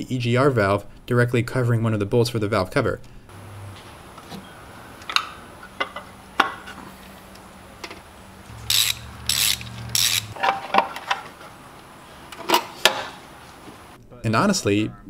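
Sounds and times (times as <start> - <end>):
ratchet wrench clicking: 8.5 - 10.4.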